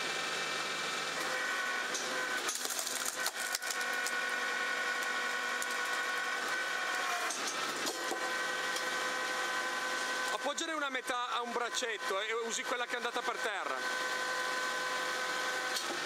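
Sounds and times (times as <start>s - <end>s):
hydraulic log splitter whine: 0.0s - 16.0s
log splitting: 2.1s - 8.2s.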